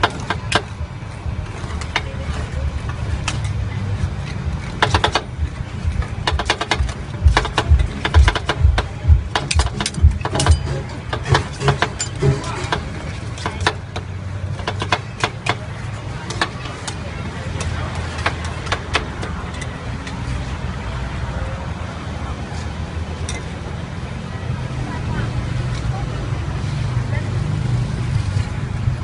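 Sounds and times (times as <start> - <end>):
steady low hum: 2.4 - 14.0.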